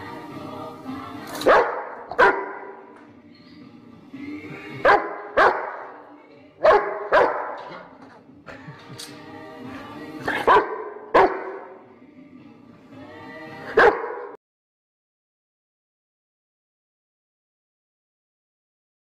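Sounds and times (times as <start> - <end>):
background music: 0.0 - 14.4
dog barking: 1.4 - 2.8, 4.8 - 6.0, 6.6 - 7.8, 10.3 - 11.8, 13.7 - 14.4.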